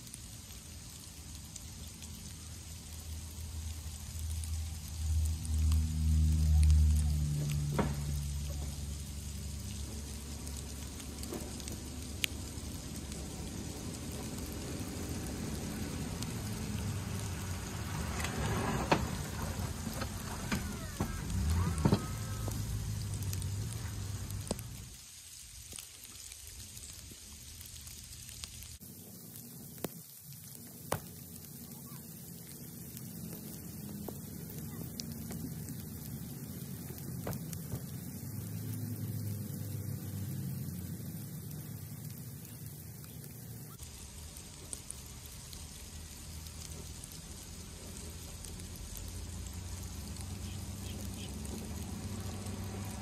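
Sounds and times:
truck engine driving past: 0:05.0 - 0:24.9, 0:33.0 - 0:42.8, 0:46.2 - 0:53.0
plow blade scraping snow: 0:09.9 - 0:24.9.

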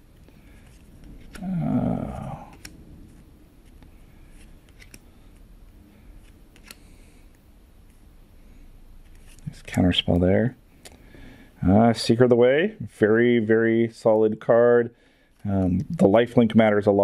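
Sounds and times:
playing cards sliding and flipping: 0:00.0 - 0:11.1, 0:15.1 - 0:17.0
person humming: 0:01.3 - 0:02.6.

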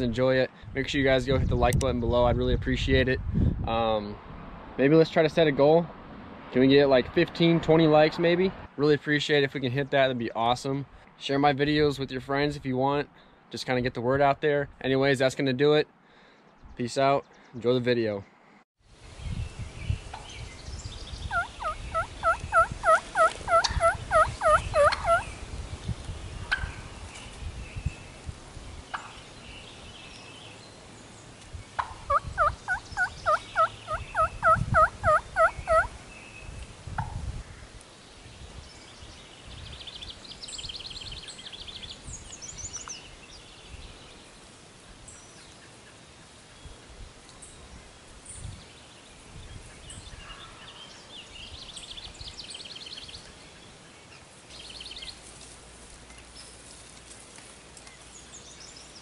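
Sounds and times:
turkey yelping: 0:21.3 - 0:25.2, 0:31.8 - 0:35.9
songbird trills: 0:48.3 - 0:55.3.

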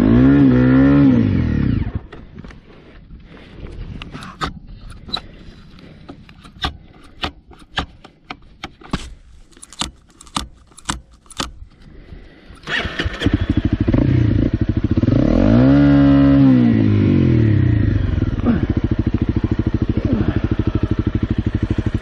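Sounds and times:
motorcycle engine starting and revving: 0:00.0 - 0:07.5, 0:12.5 - 0:22.0
sharp clicks: 0:09.5 - 0:11.9.

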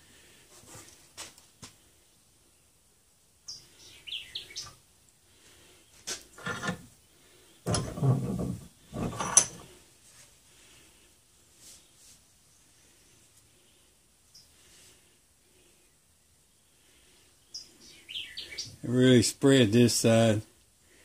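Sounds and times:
loud scraping and rubbing: 0:06.4 - 0:06.9, 0:07.7 - 0:09.6.

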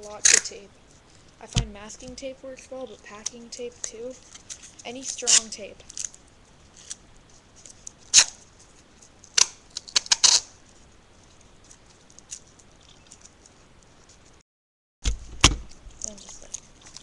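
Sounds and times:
tape ripping off roll: 0:07.6 - 0:08.5, 0:09.3 - 0:10.5.

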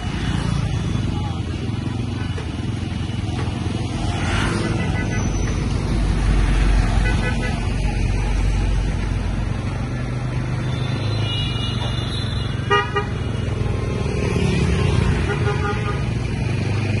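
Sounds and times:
motorbikes and cars passing: 0:00.0 - 0:17.0
vehicle horn toot: 0:10.7 - 0:13.3.

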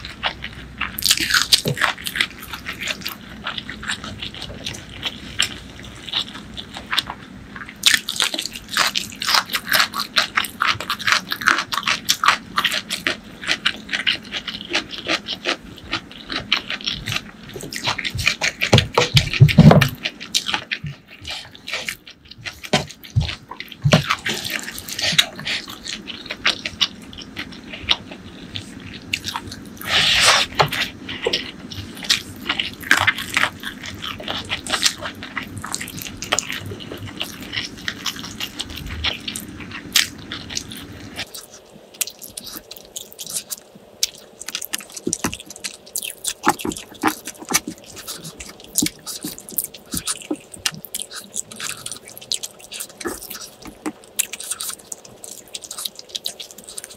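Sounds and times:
chewing and lip smacks: 0:00.0 - 0:56.9.

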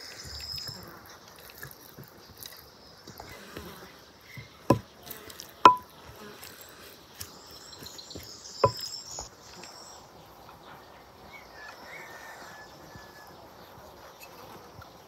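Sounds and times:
faint bird whistle: 0:00.0 - 0:00.9
insects buzzing: 0:00.0 - 0:15.0
wooden spoon tapping ceramic dish: 0:05.7 - 0:05.9, 0:08.6 - 0:08.8.

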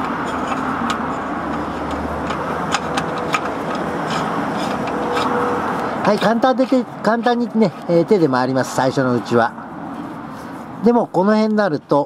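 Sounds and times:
cap turning clicks: 0:00.0 - 0:05.4
vehicle engine droning: 0:00.0 - 0:10.8.

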